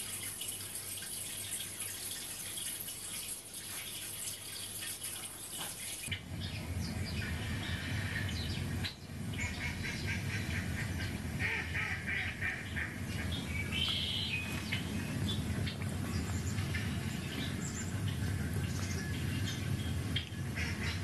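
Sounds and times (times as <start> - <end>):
small birds chirping: 0.0 - 21.0
water trickling and bubbling: 0.0 - 21.0
low background rumble: 6.1 - 21.0.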